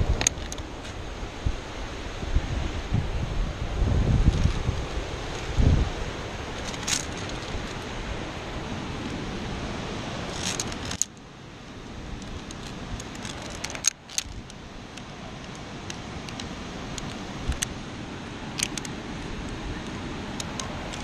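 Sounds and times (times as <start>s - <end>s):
steady rushing background: 0.0s - 21.0s
carabiner clinking on steel cable: 0.2s - 0.6s, 6.5s - 8.0s, 10.2s - 11.2s, 11.8s - 17.8s, 18.5s - 21.0s.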